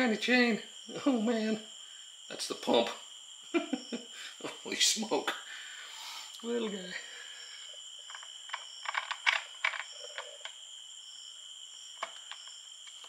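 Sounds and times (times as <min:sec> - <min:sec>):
small metallic clicks and knocks: 0:08.0 - 0:10.6, 0:12.0 - 0:13.0.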